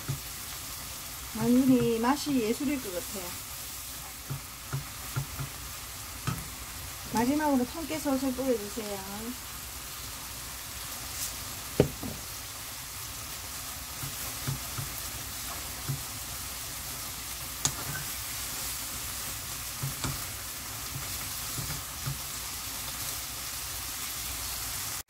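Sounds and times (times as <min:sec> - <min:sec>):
leaves sizzling in frying pan: 0:00.0 - 0:25.0
wooden spatula knocking pan: 0:04.2 - 0:05.6, 0:06.2 - 0:06.5, 0:11.7 - 0:12.2, 0:14.0 - 0:16.1, 0:19.8 - 0:20.3, 0:20.9 - 0:22.3.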